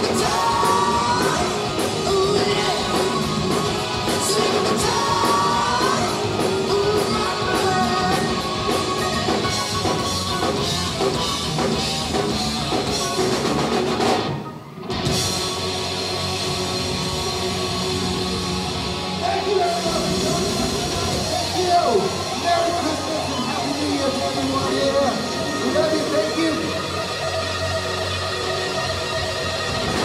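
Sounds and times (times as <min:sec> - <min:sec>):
male singer: 0:00.0 - 0:09.4
drum kit: 0:00.0 - 0:28.2, 0:28.8 - 0:30.0
bass guitar: 0:00.0 - 0:30.0
distorted electric guitars: 0:00.0 - 0:30.0.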